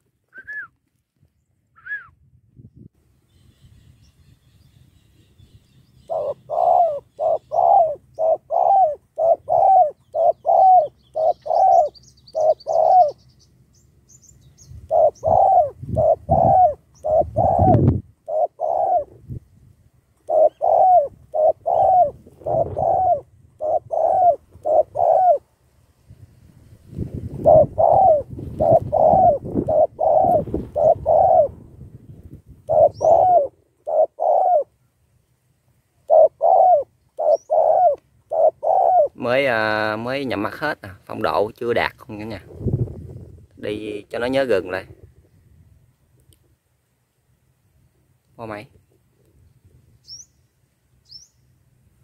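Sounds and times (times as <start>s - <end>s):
dove cooing: 6.1s - 13.2s, 14.8s - 19.4s, 20.2s - 25.5s, 27.3s - 31.6s, 32.6s - 34.8s, 36.0s - 39.5s.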